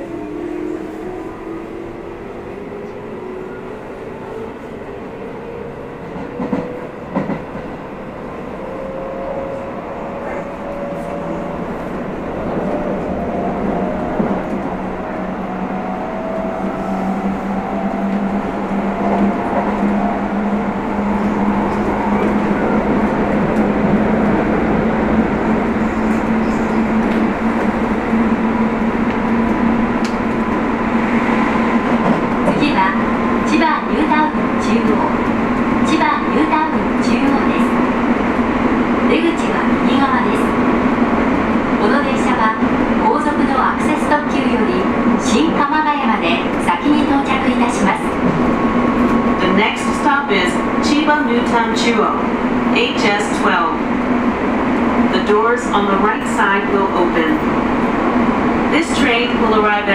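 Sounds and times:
train running noise: 0.0s - 59.9s.

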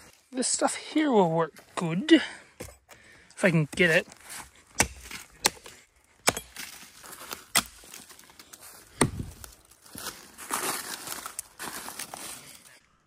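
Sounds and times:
dry sticks snapping: 4.8s - 9.8s, 10.9s - 12.2s.

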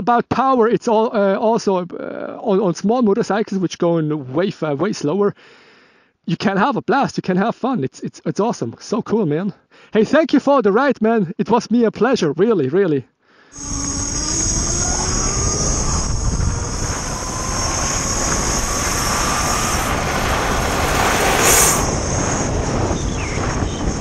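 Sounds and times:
electric motor whine: 13.6s - 24.0s
wind and tyre noise on gravel: 14.0s - 24.0s.

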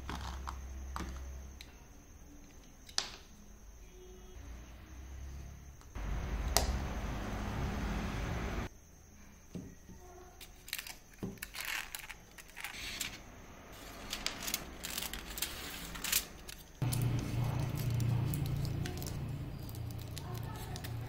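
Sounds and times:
kitchen foil crinkling: 10.4s - 21.0s
low hum: 13.2s - 21.0s.

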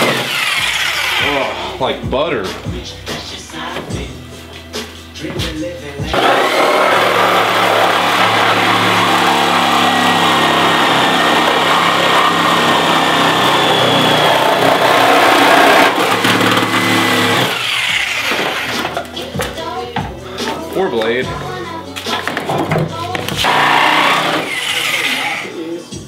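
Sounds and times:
reciprocating saw cutting steel: 0.0s - 1.6s, 6.1s - 19.0s, 23.4s - 25.6s.

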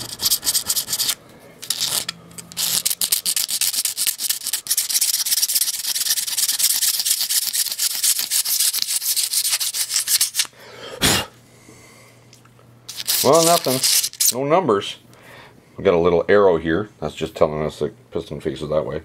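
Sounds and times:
razor blade scraping metal: 0.0s - 10.5s, 12.9s - 14.4s.

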